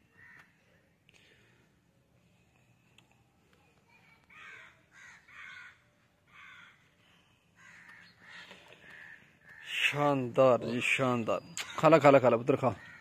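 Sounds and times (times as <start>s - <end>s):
crow cawing: 0.1s - 0.6s, 4.3s - 6.9s, 7.6s - 10.1s, 12.5s - 13.0s.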